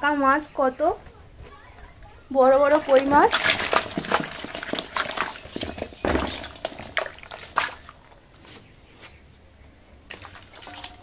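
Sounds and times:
fish splashing in shallow water: 2.7 - 8.2, 10.1 - 11.0.

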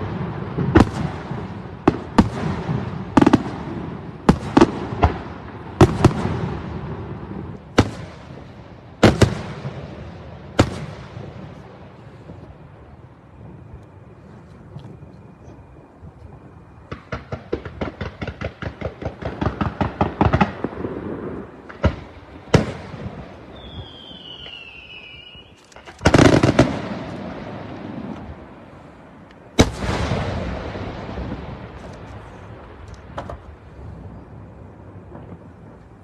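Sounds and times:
rapid firework bangs: 0.0 - 11.6, 16.8 - 25.1, 26.0 - 28.3, 29.6 - 33.6
high falling whistle: 23.5 - 25.6.

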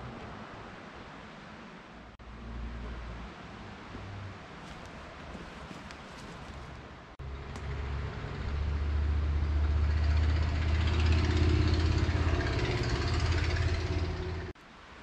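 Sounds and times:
vehicle engine running: 7.2 - 14.6.

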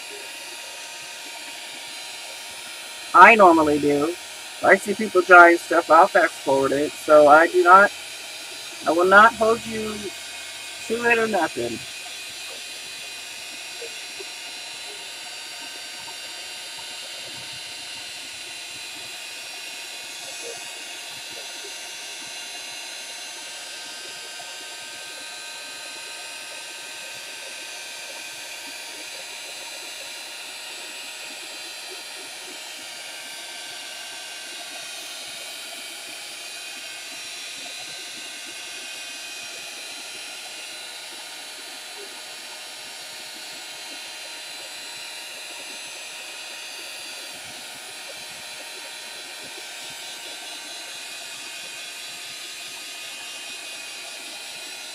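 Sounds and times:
hot-air dryer blowing: 0.0 - 54.9.

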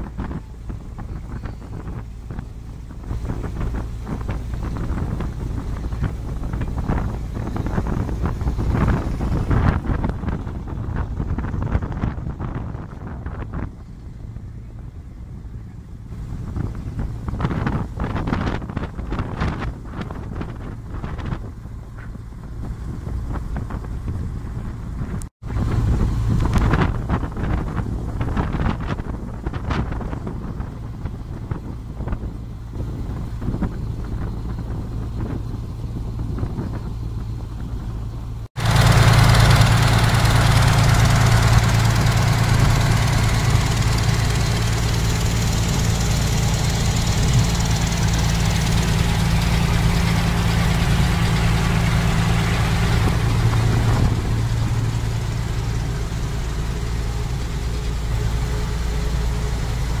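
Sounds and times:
ferry engine droning: 0.0 - 60.0
wind: 0.0 - 60.0
rushing water: 38.6 - 60.0.

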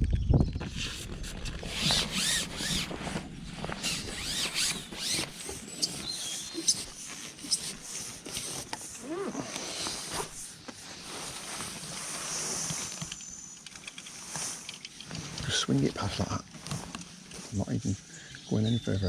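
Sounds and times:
small birds chirping: 3.8 - 10.4, 17.5 - 19.0.

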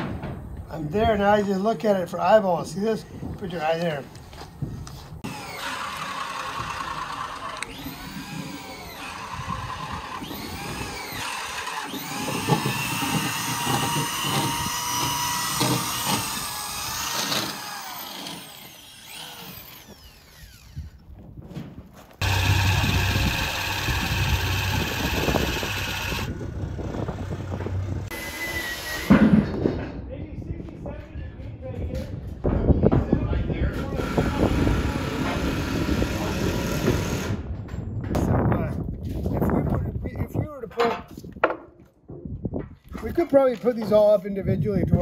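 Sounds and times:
electric drill boring into wood: 5.2 - 21.0, 22.2 - 29.2, 33.8 - 37.4.

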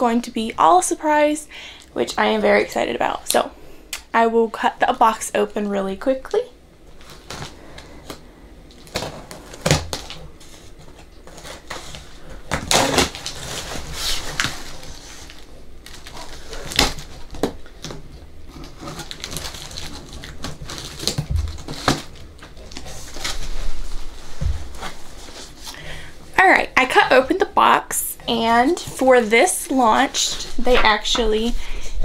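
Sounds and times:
cardboard flaps knocking and scraping: 21.0 - 23.2, 23.8 - 25.2.

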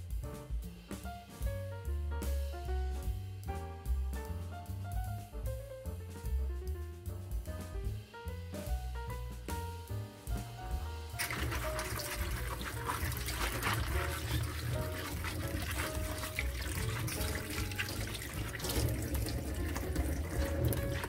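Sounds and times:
light background music: 0.0 - 21.0
tap water running into sink: 11.1 - 21.0
water splashing on plastic parts: 11.2 - 21.0.

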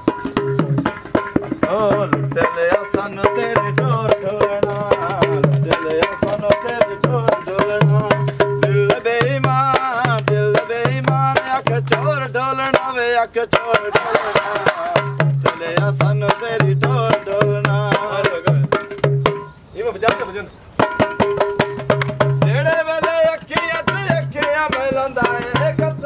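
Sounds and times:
hand drum strokes: 13.7 - 19.5
wavering melody line: 13.9 - 15.3.

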